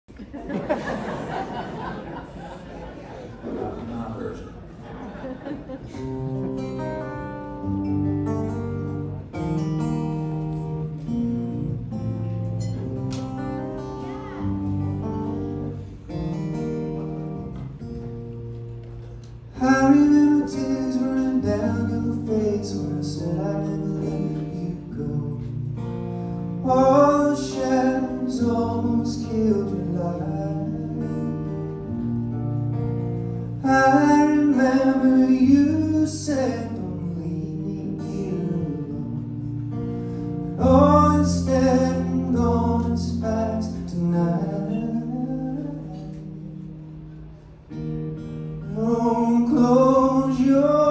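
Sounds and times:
acoustic guitar: 0:00.1 - 0:50.9
man singing: 0:19.5 - 0:25.9, 0:26.6 - 0:31.8, 0:33.6 - 0:39.6, 0:40.5 - 0:46.4, 0:48.6 - 0:50.9.

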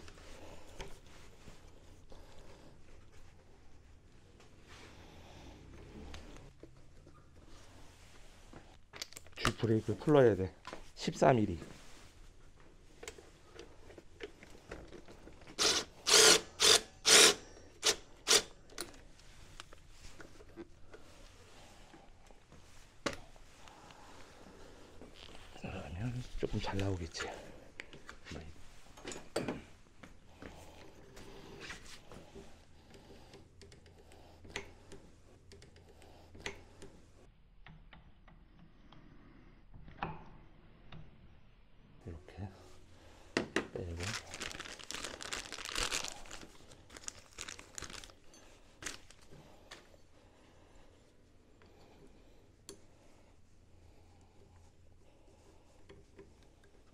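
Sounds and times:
ratchet wrench clicking: 0:15.6 - 0:18.5.

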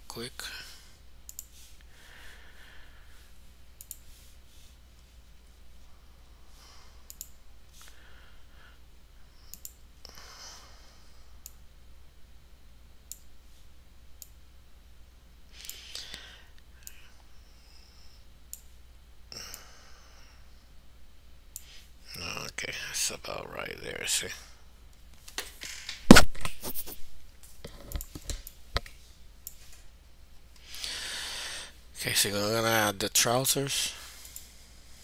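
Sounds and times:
low steady hum: 0:00.0 - 0:35.0
computer mouse clicking: 0:01.3 - 0:01.7, 0:03.8 - 0:04.2, 0:07.1 - 0:07.9, 0:09.5 - 0:09.8, 0:13.1 - 0:13.3, 0:27.7 - 0:29.8.

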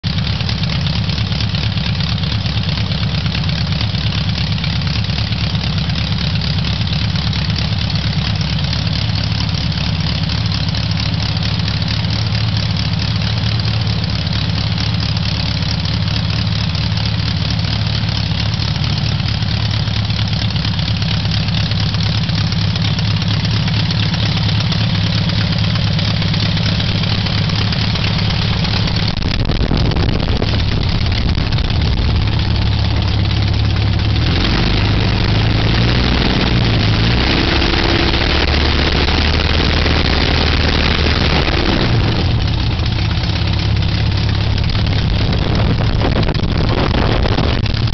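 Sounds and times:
small aircraft engine running: 0:00.0 - 0:47.9.

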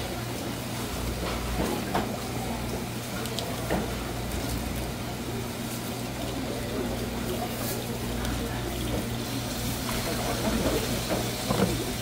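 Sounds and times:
tap water running into basin: 0:05.9 - 0:12.0.

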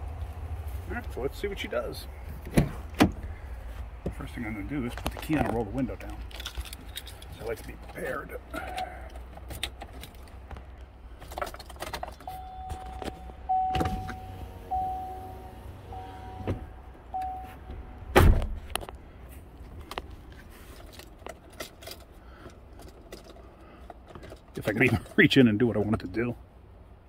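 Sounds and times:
keys jangling in ignition: 0:06.2 - 0:10.4, 0:20.8 - 0:25.2
warning chime pulses: 0:12.3 - 0:16.4.

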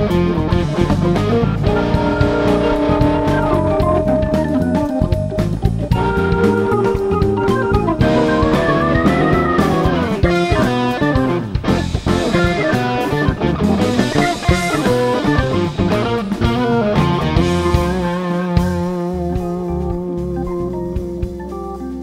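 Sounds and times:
drum kit: 0:00.0 - 0:22.0
electric bass: 0:00.0 - 0:22.0
electric guitar lead lines: 0:00.0 - 0:22.0
organ sustained chord: 0:01.6 - 0:11.5.

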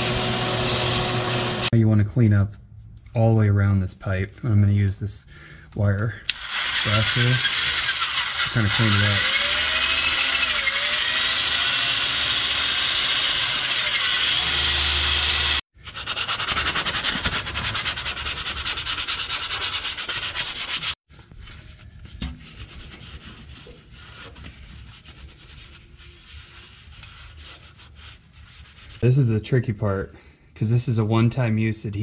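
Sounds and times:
drill wire brush scrubbing metal: 0:00.0 - 0:01.7, 0:06.3 - 0:21.0
scraping and rubbing by hand: 0:15.8 - 0:29.2.

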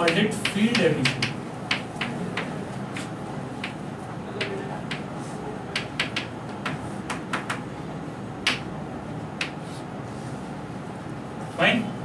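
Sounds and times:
chalk tapping on a chalkboard: 0:00.0 - 0:03.8, 0:04.4 - 0:07.7, 0:08.4 - 0:08.7, 0:09.4 - 0:09.9.

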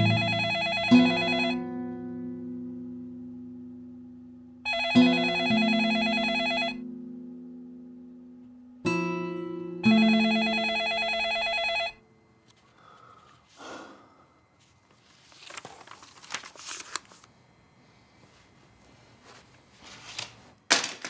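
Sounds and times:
desk telephone ringing: 0:00.0 - 0:01.6, 0:04.7 - 0:06.8, 0:09.9 - 0:12.0.

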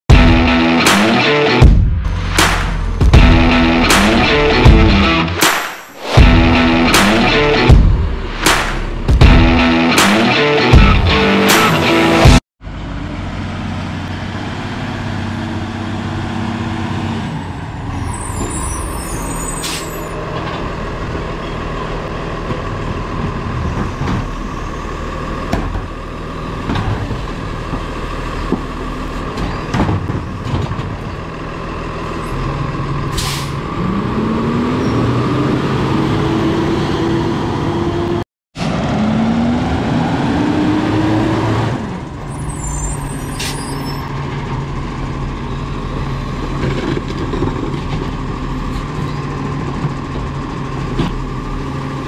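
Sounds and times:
garbage truck diesel engine: 0:00.1 - 0:05.4, 0:06.2 - 0:52.0
air brake hisses: 0:18.9 - 0:20.0, 0:33.1 - 0:33.6.

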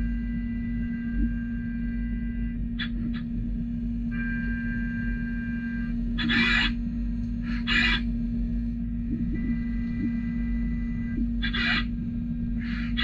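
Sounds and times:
high milling whine: 0:00.0 - 0:13.0
machine hum: 0:00.0 - 0:13.0
noisy cutting bursts: 0:06.2 - 0:06.8, 0:07.4 - 0:13.0.

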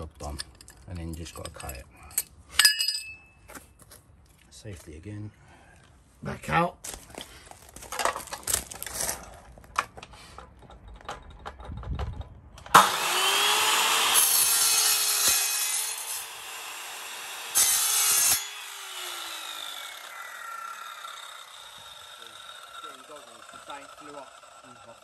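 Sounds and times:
handling clicks and knocks: 0:00.0 - 0:03.6, 0:09.6 - 0:12.7
mitre saw cutting: 0:12.7 - 0:25.0
saw motor winding down: 0:12.8 - 0:25.0.

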